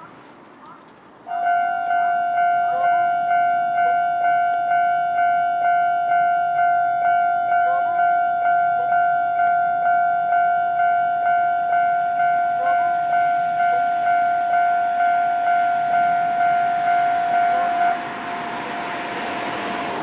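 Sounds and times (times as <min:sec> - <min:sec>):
level-crossing warning bell: 0:01.3 - 0:20.0
passing vehicle rush: 0:14.2 - 0:20.0.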